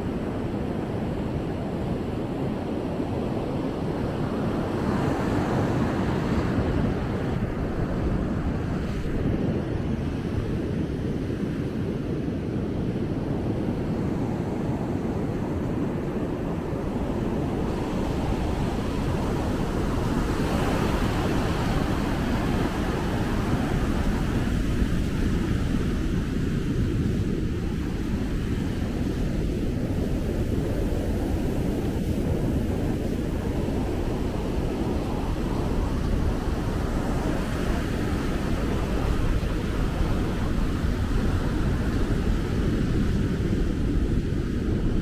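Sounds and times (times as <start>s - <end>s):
ocean surf breaking: 16.5s - 25.6s.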